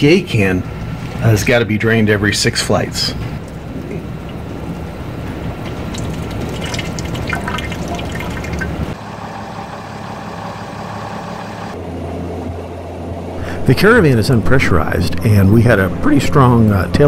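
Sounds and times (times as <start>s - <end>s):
steady low hum: 0.0s - 17.0s
fuel trickling into tube: 3.2s - 9.0s.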